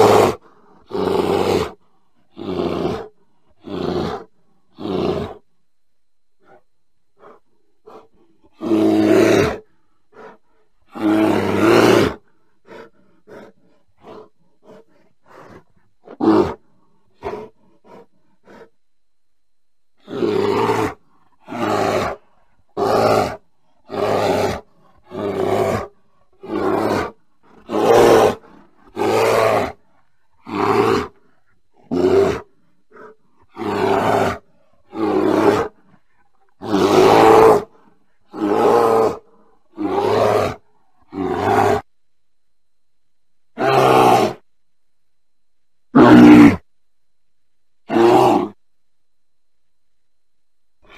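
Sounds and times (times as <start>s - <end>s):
bear calling: 0.0s - 5.5s, 6.4s - 18.8s, 20.0s - 41.9s, 43.6s - 44.4s, 46.0s - 46.7s
bear grunting softly: 6.4s - 18.8s, 20.0s - 41.9s.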